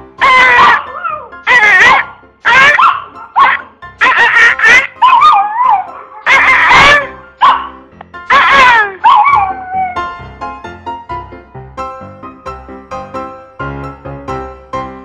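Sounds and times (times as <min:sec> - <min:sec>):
music: 0:00.0 - 0:15.0
puppy yowling and whining: 0:00.2 - 0:07.7, 0:08.3 - 0:10.2.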